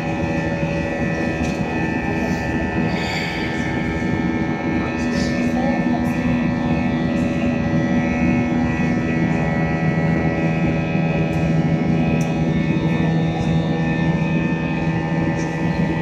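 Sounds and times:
jet engine cabin hum: 0.0 - 16.0
rushing air noise: 0.8 - 6.6.

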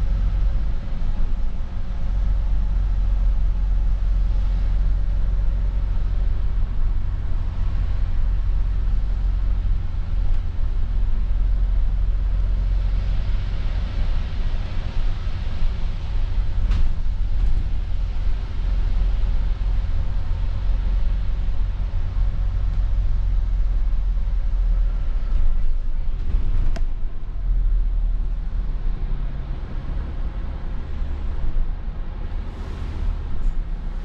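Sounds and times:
diesel bus engine rumbling: 0.0 - 34.0.

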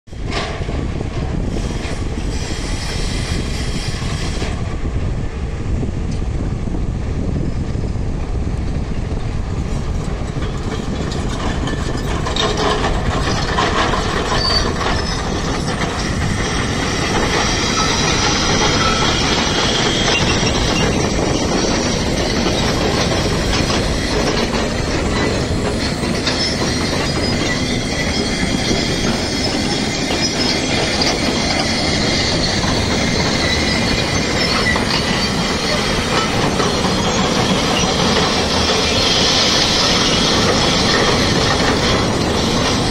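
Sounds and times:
heavy machinery noise: 10.0 - 42.9
metallic clanking and squealing: 10.1 - 42.9.

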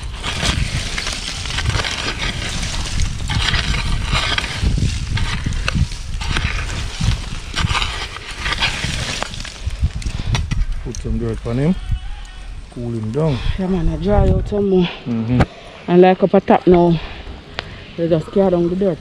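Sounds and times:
charcoal crunching and scraping: 0.0 - 13.6
steady low rumble: 0.0 - 19.0.

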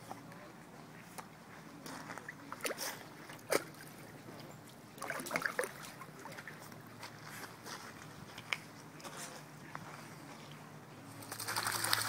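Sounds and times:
low water noise: 0.0 - 9.7, 10.5 - 12.0
dog splashing in water: 5.0 - 6.6, 11.2 - 12.0.

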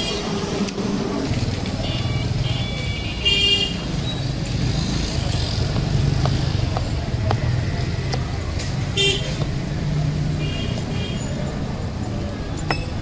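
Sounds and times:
traffic rumble: 0.0 - 13.0
car horn honk: 1.8 - 3.8, 9.0 - 9.3.

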